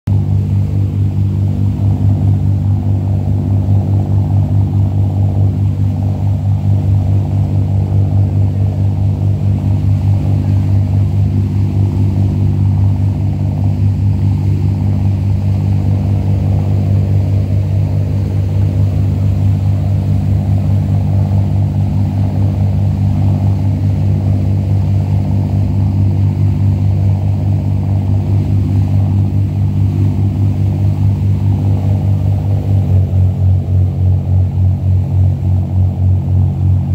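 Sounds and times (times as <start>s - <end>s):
boat engine droning: 0.1s - 36.9s.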